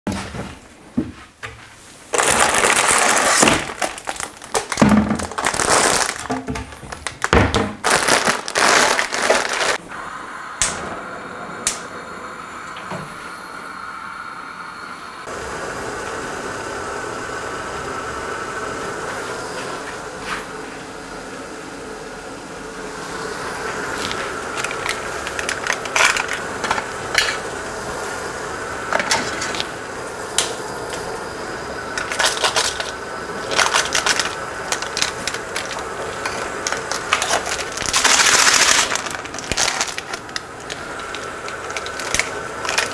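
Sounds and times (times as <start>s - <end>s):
water heating on gas stove: 0.1s - 42.9s
plastic packets crinkling: 2.1s - 9.8s, 23.7s - 27.5s, 31.9s - 42.9s.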